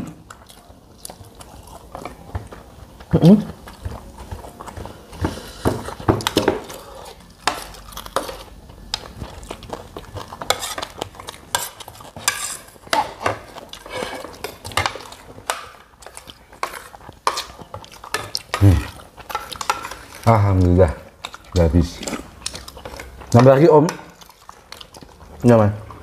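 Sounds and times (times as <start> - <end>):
spoons clinking on plates: 19.2 - 20.2.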